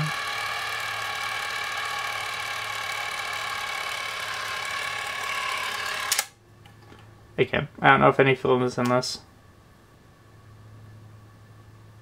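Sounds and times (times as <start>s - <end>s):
film camera mechanism whirring: 0.0s - 7.0s.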